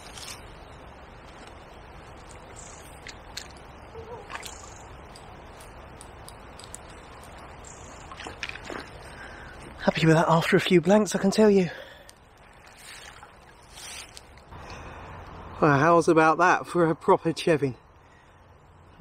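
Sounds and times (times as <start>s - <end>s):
water sloshing: 2.3s - 5.6s, 6.3s - 9.6s, 12.5s - 14.4s.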